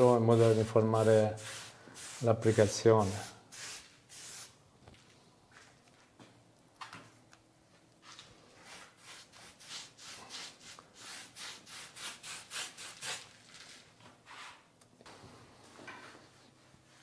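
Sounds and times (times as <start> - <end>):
paintbrush rubbing strokes: 0.0 - 4.5.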